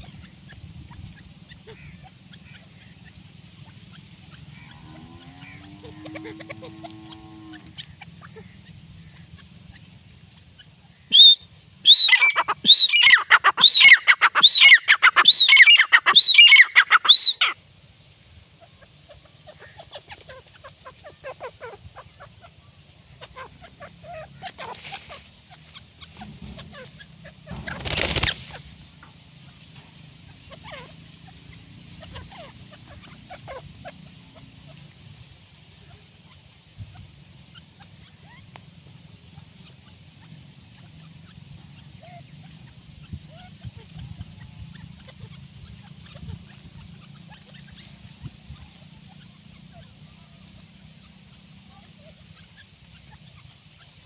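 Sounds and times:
bird calling ringing high notes: 0:11.1 - 0:17.6.

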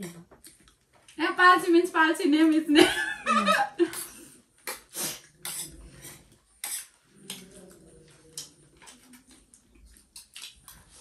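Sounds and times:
crunchy food eating: 0:04.7 - 0:11.0.

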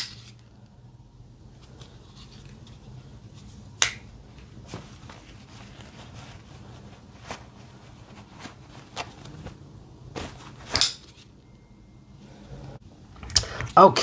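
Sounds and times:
clothing rustling: 0:01.4 - 0:11.6
folding knife swish and snap: 0:10.6 - 0:11.2.

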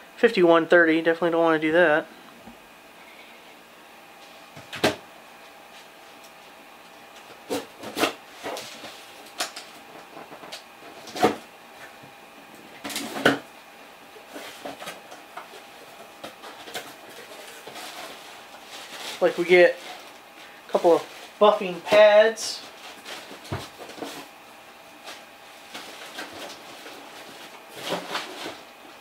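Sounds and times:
cardboard rustling: 0:14.2 - 0:24.3, 0:25.0 - 0:29.0.

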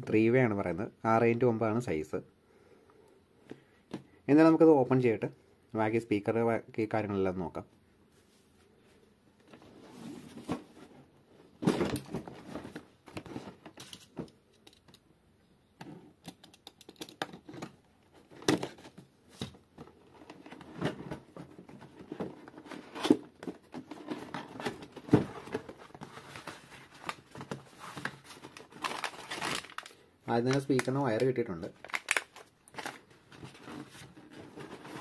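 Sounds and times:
packaging rustling and crinkling: 0:17.0 - 0:35.0.

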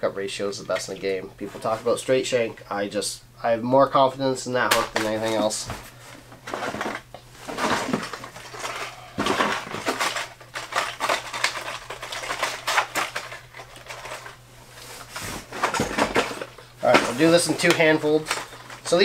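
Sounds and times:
packaged lures clattering and rustling: 0:06.5 - 0:14.4, 0:15.1 - 0:19.0.

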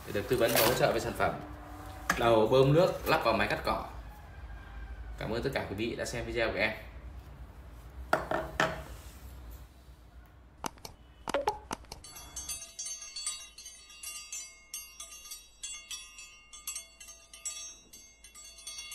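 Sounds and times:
tinkling chime effect: 0:12.0 - 0:18.9.

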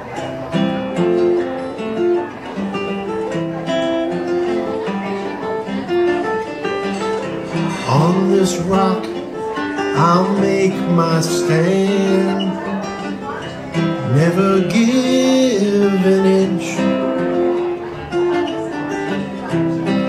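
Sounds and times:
acoustic guitar picking: 0:00.0 - 0:20.0
man singing: 0:07.6 - 0:17.3.

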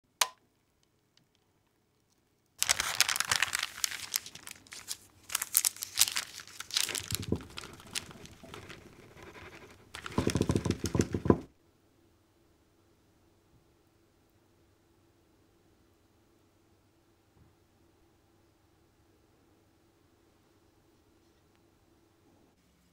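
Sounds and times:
parchment paper crinkling: 0:02.0 - 0:11.5.

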